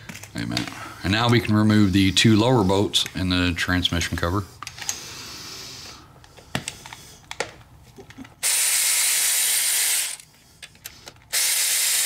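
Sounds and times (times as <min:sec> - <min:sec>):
cordless power ratchet running: 0:08.4 - 0:10.2, 0:11.3 - 0:12.0.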